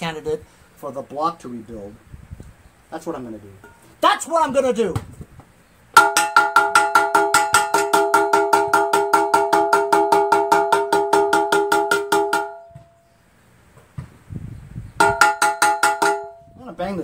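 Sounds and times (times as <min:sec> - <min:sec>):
hammer tapping metal casting: 0:06.0 - 0:12.8, 0:15.0 - 0:16.4.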